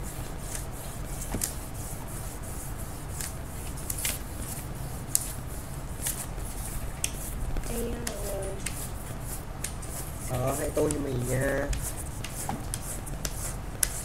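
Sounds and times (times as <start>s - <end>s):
low steady hum: 0.0s - 14.0s
pencil strokes on paper: 0.0s - 14.0s.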